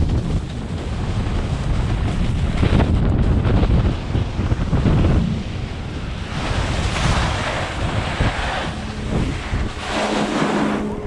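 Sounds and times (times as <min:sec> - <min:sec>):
skis scraping across snow: 0:00.0 - 0:11.0
wind buffeting microphone: 0:00.0 - 0:11.0.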